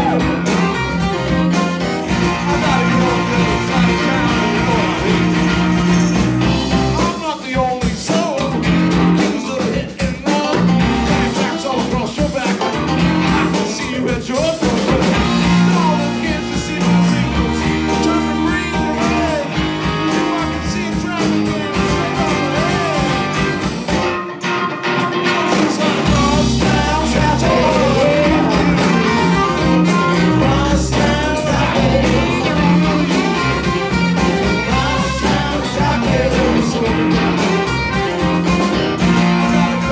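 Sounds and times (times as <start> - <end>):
person singing: 0.0 - 0.8, 2.1 - 5.8, 6.8 - 23.5, 25.0 - 38.0
harmonica: 0.0 - 7.0, 15.2 - 39.9
live blues band playing: 0.0 - 39.9.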